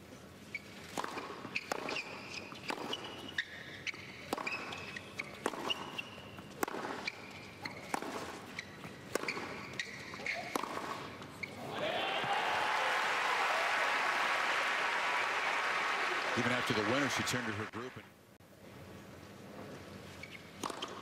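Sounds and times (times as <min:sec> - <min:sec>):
shoe squeaks on court: 0:00.4 - 0:11.6, 0:20.1 - 0:21.0
tennis ball struck by rackets: 0:00.9 - 0:11.2, 0:20.6 - 0:21.0.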